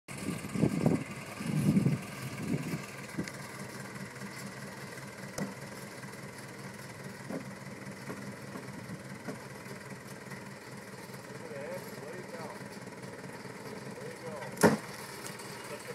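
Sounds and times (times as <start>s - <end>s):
bulldozer diesel engine running: 0.1s - 15.9s.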